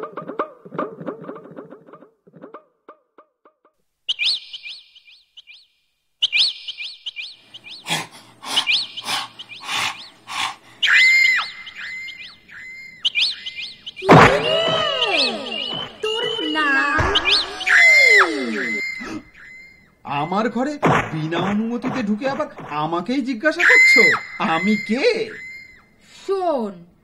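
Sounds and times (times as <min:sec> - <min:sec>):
bird chirps and whistles: 0:04.1 - 0:07.9, 0:08.5 - 0:10.2, 0:10.8 - 0:20.5, 0:23.6 - 0:25.9.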